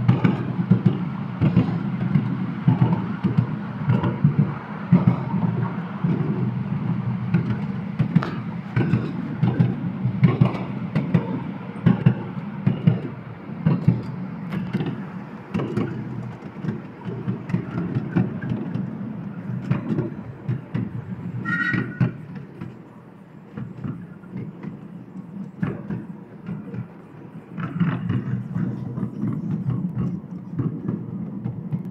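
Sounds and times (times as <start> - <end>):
clacks and knocks from rails: 0.0 - 6.5, 7.3 - 22.8, 23.5 - 27.0, 27.6 - 31.9
train wheels rumbling on track: 0.0 - 31.9
high squeal: 21.4 - 22.2.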